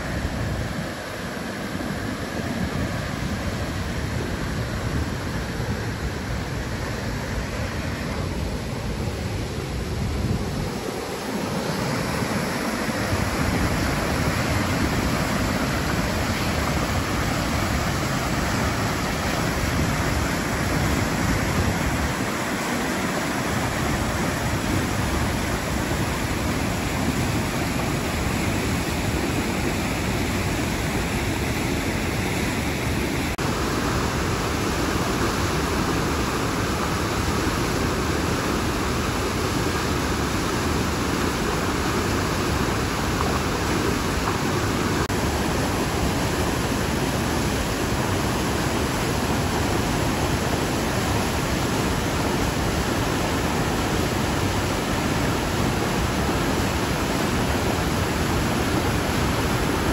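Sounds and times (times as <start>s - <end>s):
river water rushing over cascades: 0.0s - 59.9s.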